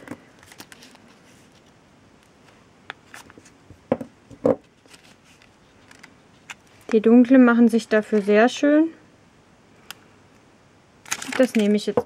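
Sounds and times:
soft handling rustles: 4.6 - 7.0.

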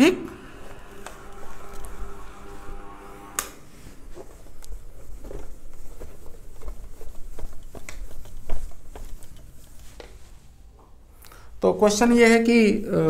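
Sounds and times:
whiteboard being wiped: 0.0 - 10.6.

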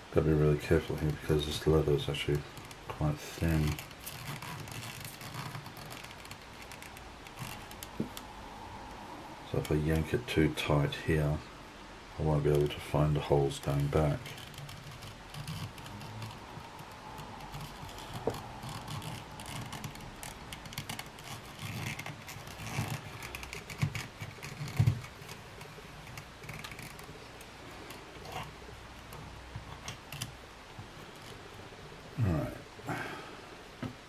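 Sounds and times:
small clicks and rustles: 0.6 - 10.3, 12.4 - 31.8
thread drawn through leather: 2.3 - 9.6, 13.5 - 31.6.

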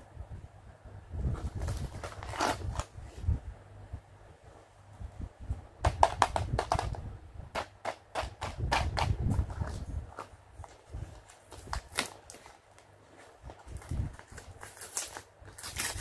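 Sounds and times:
plastic packaging crinkling: 9.3 - 16.0.

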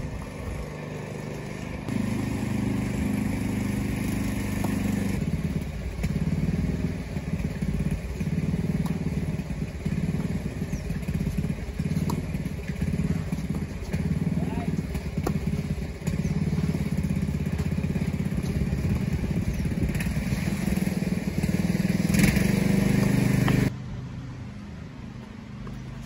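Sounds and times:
engine running: 0.0 - 26.0
tennis ball strikes: 4.0 - 5.2, 8.0 - 19.5, 22.8 - 23.7.

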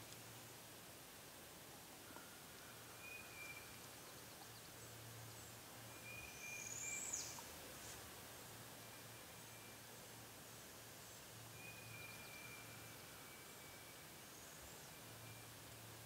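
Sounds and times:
songbird whistled calls: 3.0 - 3.7, 5.9 - 7.4.

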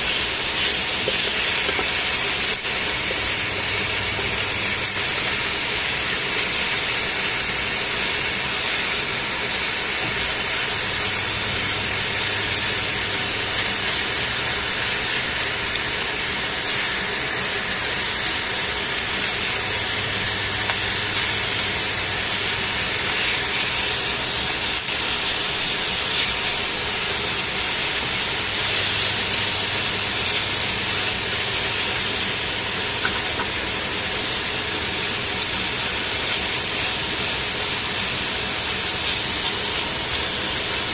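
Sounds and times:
chicken sizzling in a pan: 0.0 - 40.9
tongs turning meat: 8.0 - 33.7.

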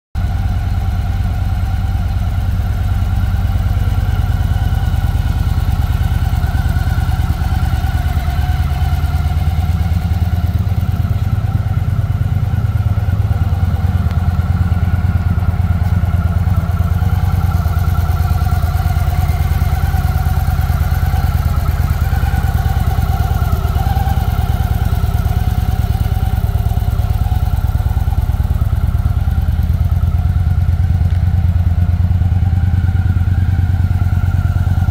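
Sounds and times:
motorcycle engine idling: 0.2 - 34.9.

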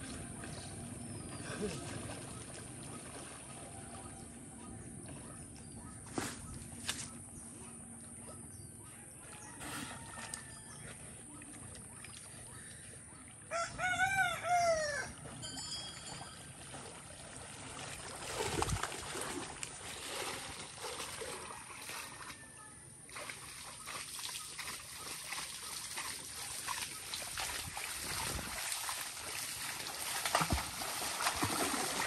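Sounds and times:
person wading through water: 0.0 - 32.0
rooster crowing: 13.5 - 15.2.

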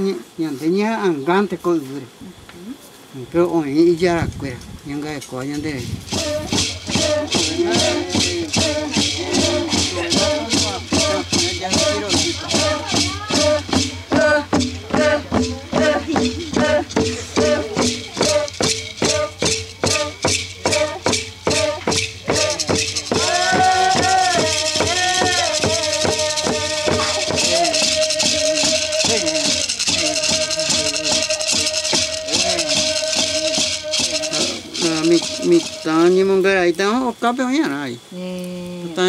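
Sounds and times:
voices chanting: 5.5 - 39.0
rattles shaking: 5.8 - 36.4.

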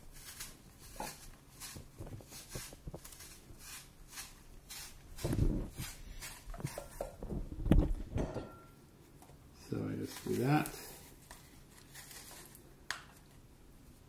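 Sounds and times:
peeler scraping apple skin: 0.0 - 7.0.

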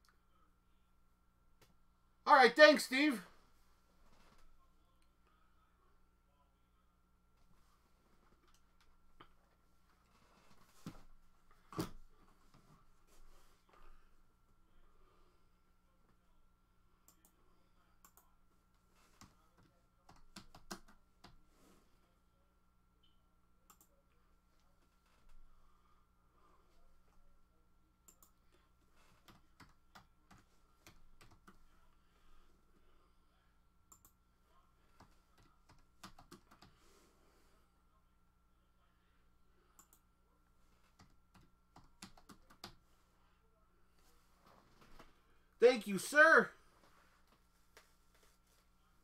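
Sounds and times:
low steady hum: 0.0 - 49.0
computer keyboard clicks: 20.1 - 21.4, 35.0 - 36.7, 41.0 - 42.8.

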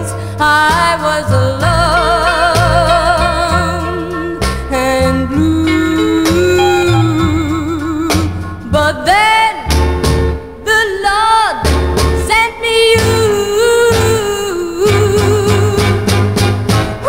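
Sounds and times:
steady bass line: 0.0 - 9.0
girl singing pop ballad: 0.0 - 9.8, 10.6 - 16.2
backing band: 1.6 - 8.7, 14.9 - 17.0.

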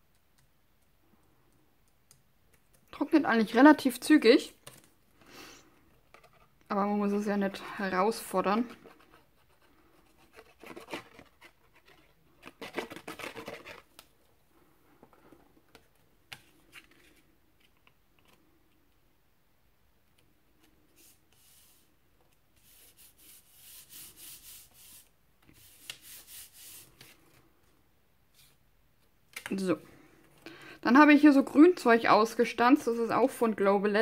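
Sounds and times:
paper card rustling: 10.4 - 14.1
hands rubbing card: 22.6 - 27.4.

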